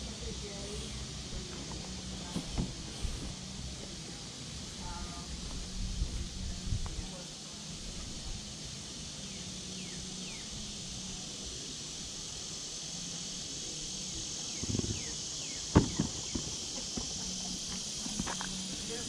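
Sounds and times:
high insect chorus: 0:00.0 - 0:19.0
sharp knock: 0:15.7 - 0:16.5.

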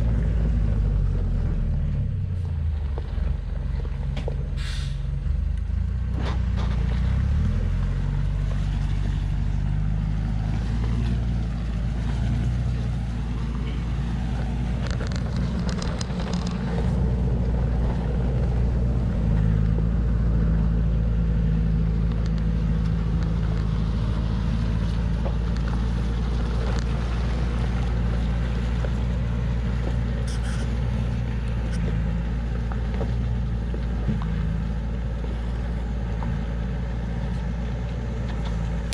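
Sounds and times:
truck engine running under load: 0:00.0 - 0:38.9
truck clicks and knocks: 0:14.3 - 0:18.6.

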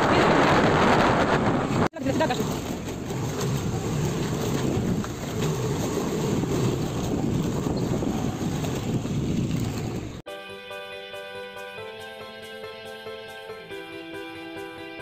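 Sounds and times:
wind buffeting microphone: 0:00.0 - 0:10.2.

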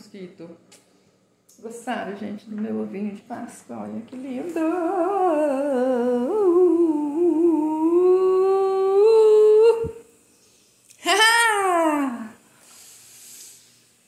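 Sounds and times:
woman humming: 0:04.2 - 0:10.2, 0:11.0 - 0:12.4.

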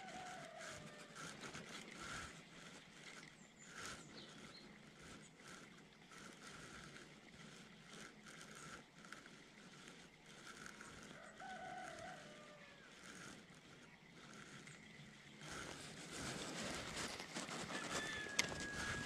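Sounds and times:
fishing reel whirring and ticking: 0:00.0 - 0:19.0
faint drawn-out animal call: 0:10.4 - 0:14.7.

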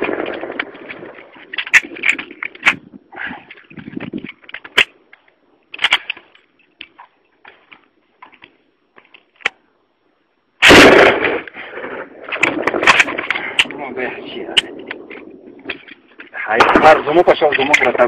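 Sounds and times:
gunshots: 0:10.6 - 0:14.8, 0:16.5 - 0:18.0.

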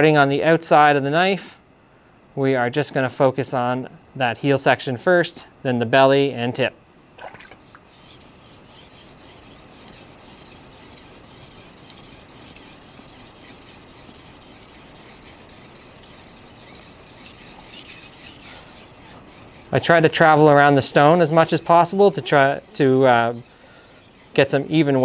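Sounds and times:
knife scraping on whetstone: 0:07.6 - 0:25.0.

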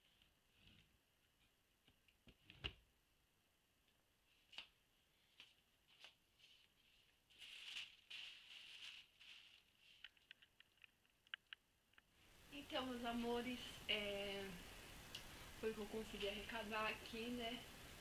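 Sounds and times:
clothes being moved: 0:04.2 - 0:10.6
plastic bag rustling: 0:05.9 - 0:10.6.

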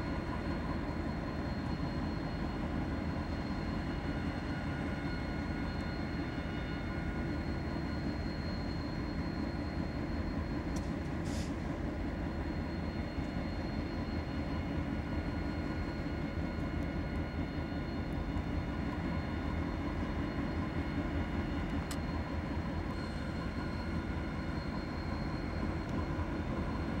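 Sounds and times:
faint steady whines: 0:00.0 - 0:27.0.

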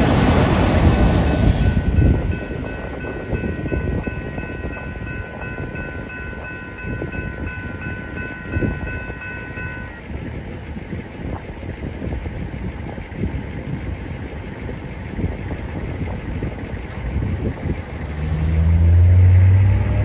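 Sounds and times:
railroad crossing bell ringing: 0:00.0 - 0:10.2
low train rumble: 0:00.0 - 0:20.0.

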